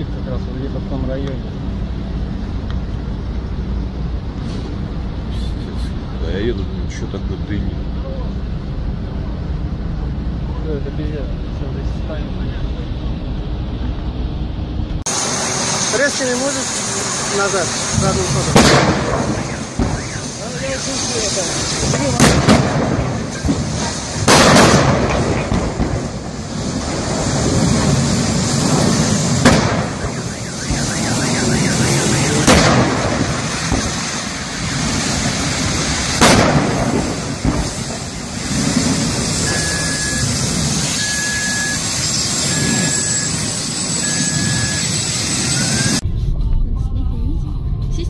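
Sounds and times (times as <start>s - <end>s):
steady loud rushing noise: 0.0s - 48.0s
loud explosion blasts: 15.0s - 46.8s
electronic beep: 30.0s - 32.4s, 39.4s - 46.0s.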